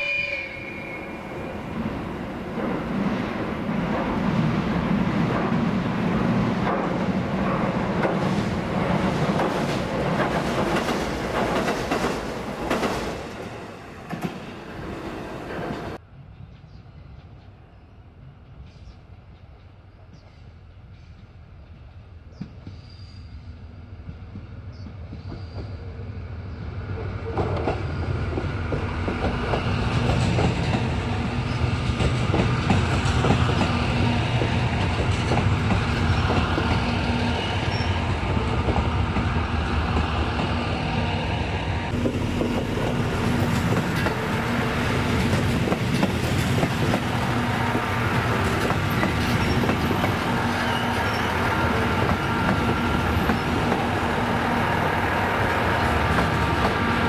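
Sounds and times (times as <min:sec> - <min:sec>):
diesel train engine drone: 0:00.0 - 0:16.3, 0:21.4 - 0:57.0
train wheels clicking on rails: 0:02.0 - 0:14.9, 0:24.0 - 0:25.8, 0:27.3 - 0:40.6, 0:41.9 - 0:57.0.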